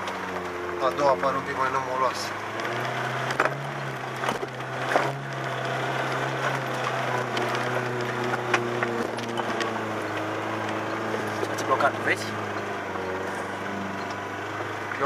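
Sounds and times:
knocks and cracks over dirt track: 0.0s - 15.0s
vehicle engine running at low revs: 0.0s - 15.0s.

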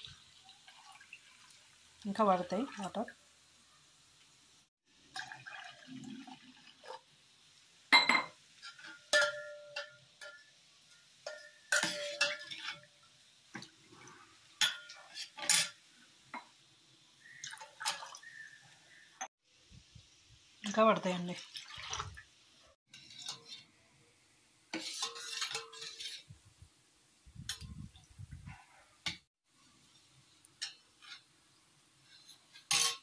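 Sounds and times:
liquid sloshing: 21.4s - 22.3s.

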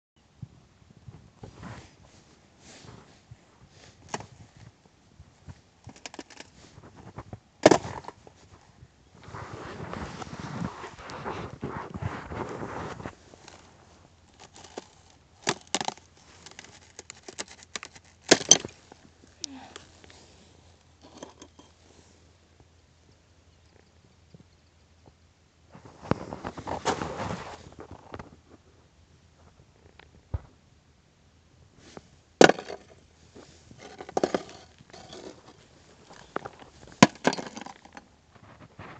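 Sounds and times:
thin ice cracking and crunching: 13.3s - 13.7s, 14.3s - 20.2s, 33.8s - 38.0s
ice cracking and snapping: 14.3s - 19.0s.

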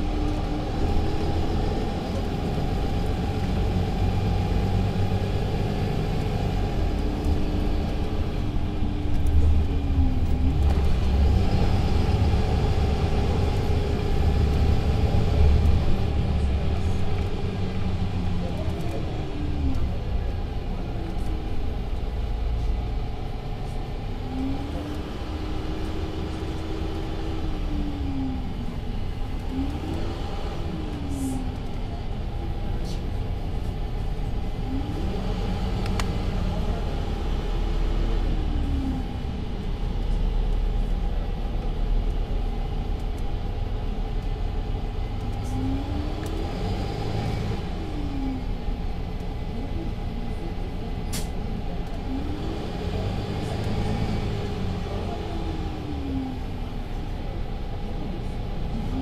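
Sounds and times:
bus engine rumble: 0.0s - 59.0s.

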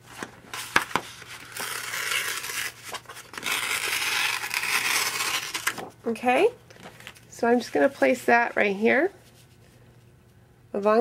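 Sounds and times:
cardstock ripping: 0.2s - 5.9s.

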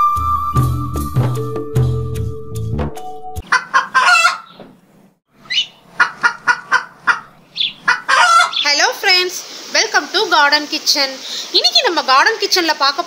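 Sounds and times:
intro music: 0.0s - 3.4s
chicken clucking: 3.4s - 4.6s, 5.5s - 8.6s.

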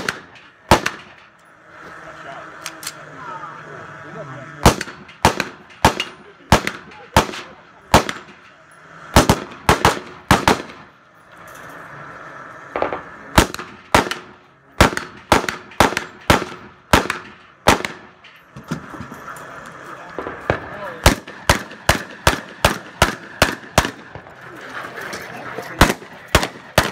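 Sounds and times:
rifle gunshots: 0.0s - 1.3s, 4.6s - 8.5s, 9.1s - 11.0s, 12.8s - 18.8s, 20.2s - 24.4s, 25.8s - 26.9s.

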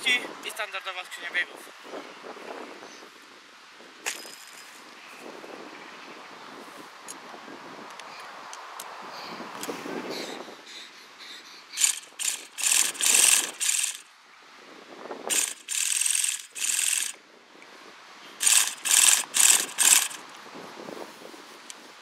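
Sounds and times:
starter whirring engine: 11.8s - 14.0s, 15.3s - 17.2s, 18.4s - 20.2s.

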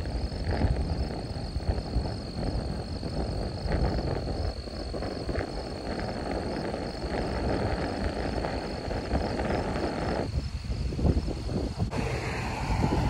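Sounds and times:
wind buffeting microphone: 0.0s - 13.0s
faint high pulsing tone: 11.9s - 13.0s.

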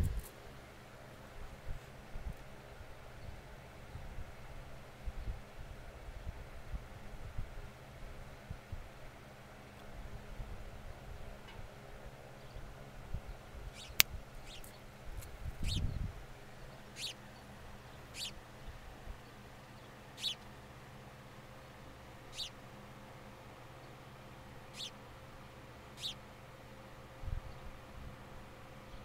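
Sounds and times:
sparrow chirping: 13.3s - 20.6s, 21.6s - 22.6s, 24.6s - 25.1s, 25.9s - 26.3s.

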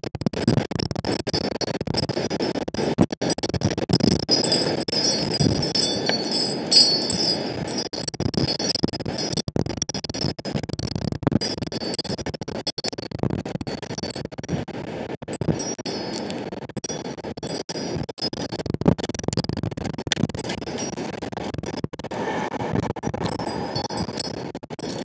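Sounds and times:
light clinks and scratches: 4.2s - 7.9s, 15.3s - 16.4s, 23.2s - 25.0s.

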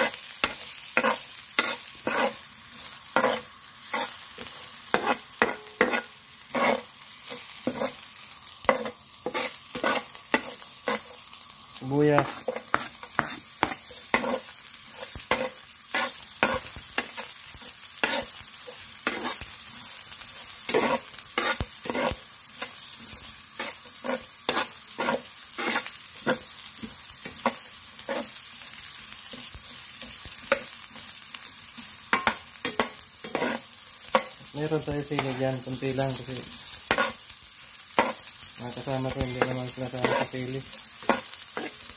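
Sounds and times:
metal spatula scraping pan: 0.0s - 2.4s, 3.2s - 4.2s, 4.9s - 6.9s, 8.7s - 11.1s, 20.7s - 22.2s, 23.6s - 26.4s, 32.1s - 34.4s
onions sizzling in hot oil: 0.0s - 41.9s.

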